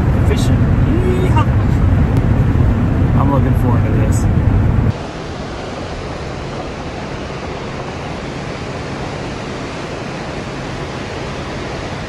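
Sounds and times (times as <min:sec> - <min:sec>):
river rapids rushing: 0:04.9 - 0:12.0.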